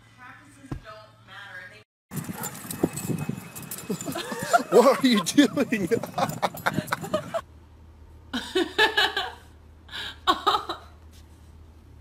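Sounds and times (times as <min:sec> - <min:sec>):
person laughing: 0:03.9 - 0:07.4, 0:08.4 - 0:11.0.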